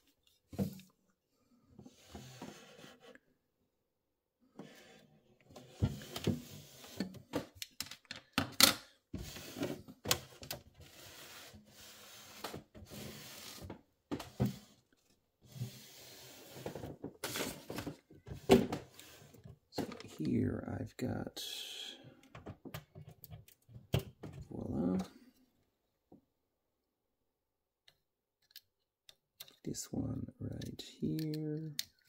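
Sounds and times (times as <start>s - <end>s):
display case rubbing and scraping: 1.9s - 3.2s, 9.2s - 14.7s.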